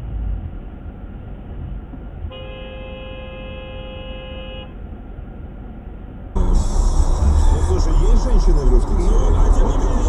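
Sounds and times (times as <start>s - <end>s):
engine and road rumble: 0.0s - 10.0s
vehicle horn honk: 2.3s - 4.8s.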